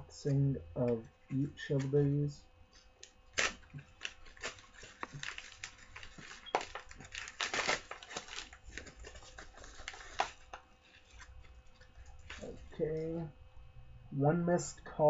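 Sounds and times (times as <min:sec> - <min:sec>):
mailer envelope crinkling: 0:02.8 - 0:13.2.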